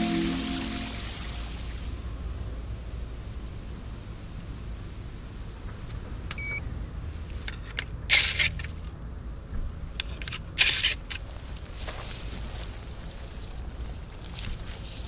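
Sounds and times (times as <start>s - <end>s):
short electronic beep: 0.0s - 1.5s.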